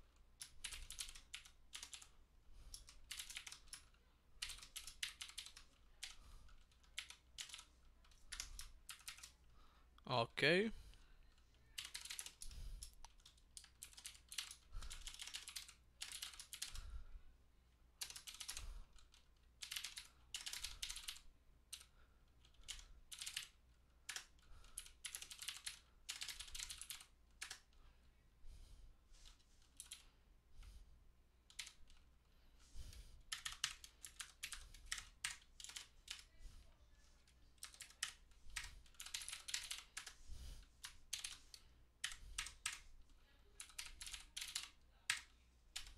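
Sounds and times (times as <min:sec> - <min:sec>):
computer keyboard typing: 0:00.0 - 0:09.4, 0:11.7 - 0:16.9, 0:18.0 - 0:27.7, 0:29.2 - 0:30.1, 0:31.5 - 0:32.0, 0:33.3 - 0:36.4, 0:37.6 - 0:40.2, 0:40.8 - 0:42.9, 0:43.6 - 0:45.9.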